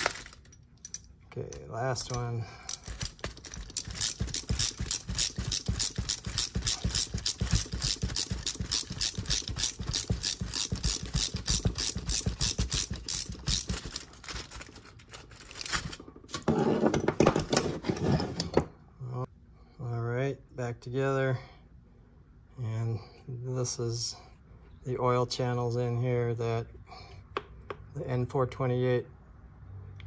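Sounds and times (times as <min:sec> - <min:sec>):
hand ratchet clicking: 0:02.0 - 0:14.1.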